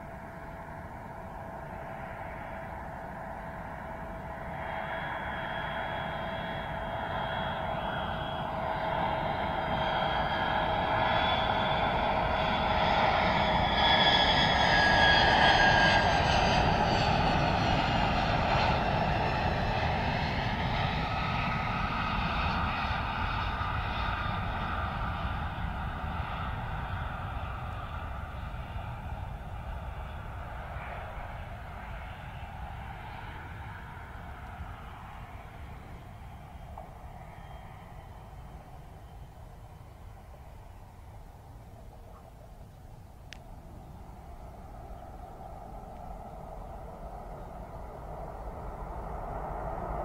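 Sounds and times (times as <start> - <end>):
jet aircraft passing: 0.0 - 50.0.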